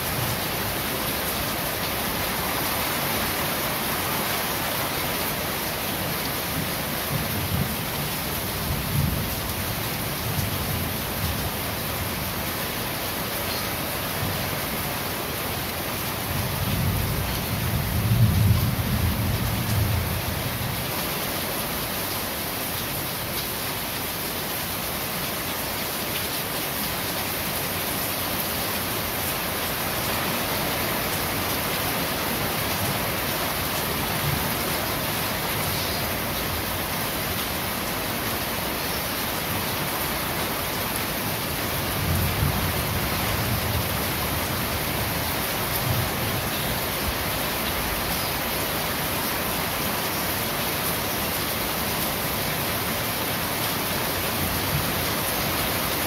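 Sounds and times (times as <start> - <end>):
rain on corrugated roofing: 0.0 - 56.0
low rumble of thunder: 16.7 - 20.7.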